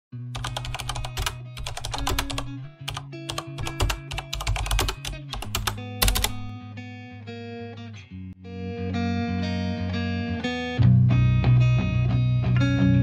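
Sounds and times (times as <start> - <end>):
keyboard typing clicks: 0.4 - 6.5.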